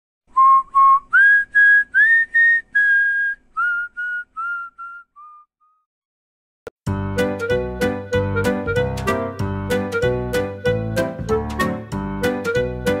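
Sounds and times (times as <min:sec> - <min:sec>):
person whistling a tune: 0:00.3 - 0:05.9.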